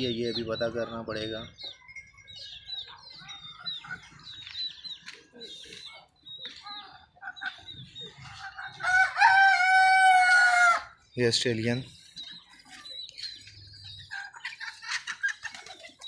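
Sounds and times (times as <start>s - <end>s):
poultry chirping and peeping: 0.0s - 16.0s
rooster crowing: 8.8s - 10.9s.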